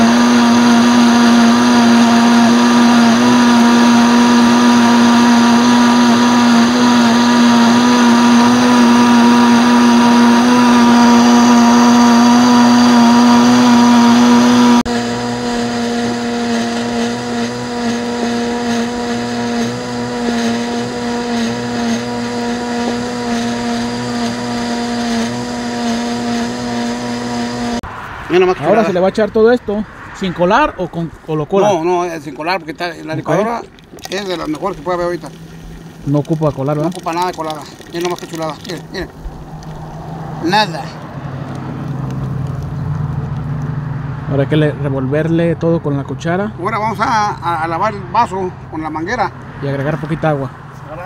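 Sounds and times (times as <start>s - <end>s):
electric blender running: 0.0s - 27.8s, 33.2s - 39.7s.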